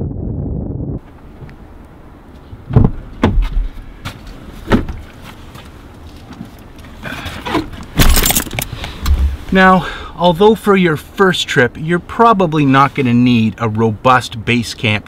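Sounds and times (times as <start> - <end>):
tool bag rustling: 7.4 - 9.5.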